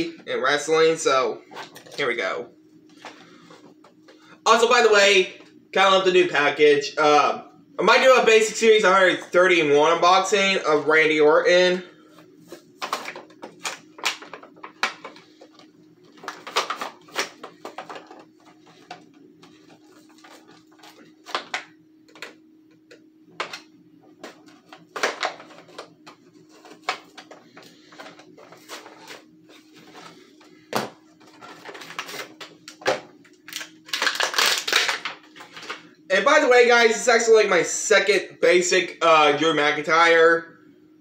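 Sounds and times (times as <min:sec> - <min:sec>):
faint steady hum: 0:00.0 - 0:41.0
plastic packaging crinkling: 0:12.7 - 0:21.6, 0:31.2 - 0:35.9.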